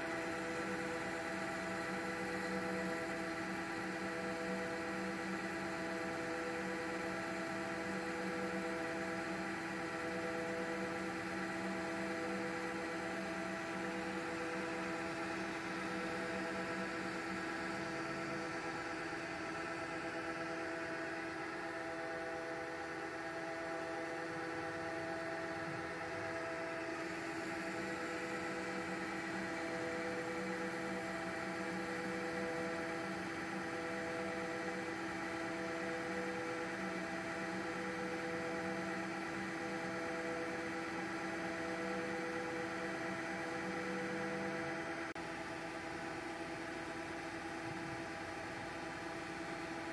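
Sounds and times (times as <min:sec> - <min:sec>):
lathe machine hum: 0:00.0 - 0:49.9
lower machine hum: 0:00.0 - 0:49.9.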